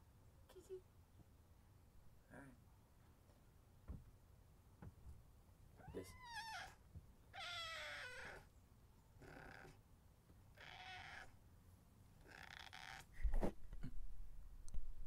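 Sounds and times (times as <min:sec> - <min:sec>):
cat meowing: 0:05.8 - 0:08.5, 0:10.5 - 0:11.3, 0:12.2 - 0:13.0.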